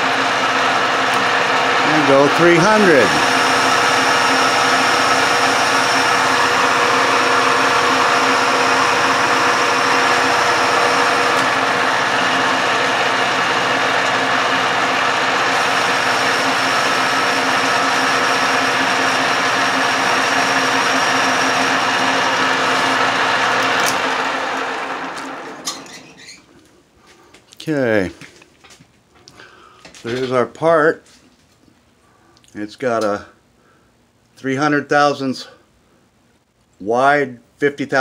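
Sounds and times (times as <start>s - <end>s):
metal lathe whining: 0.0s - 26.4s.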